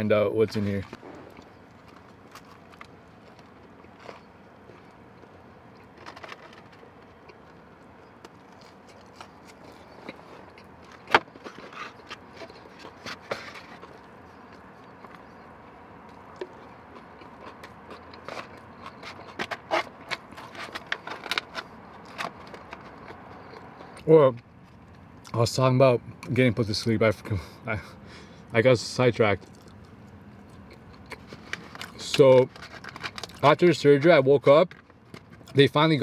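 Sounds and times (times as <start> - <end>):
chewing and mouth clicks: 1.3 - 24.0, 29.4 - 32.0.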